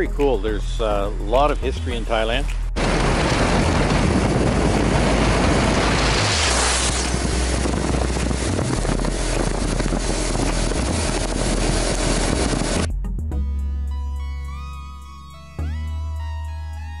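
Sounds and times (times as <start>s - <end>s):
motorcycle engine hum: 2.6s - 12.9s
wind rushing over microphone: 2.7s - 12.9s
tyre hiss on wet road: 4.9s - 7.5s.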